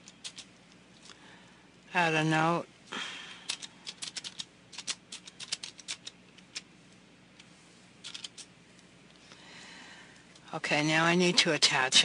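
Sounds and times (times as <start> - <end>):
keyboard keys clicking: 3.5 - 6.1.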